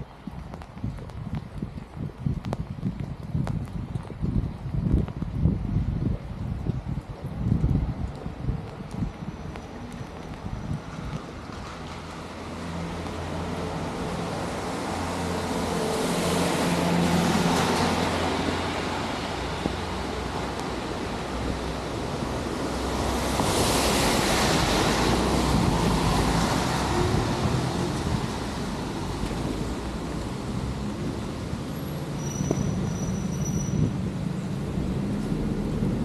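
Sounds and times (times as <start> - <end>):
low wind rumble: 0.0 - 36.0
rain: 0.0 - 36.0
tyre hiss on wet road: 10.3 - 36.0.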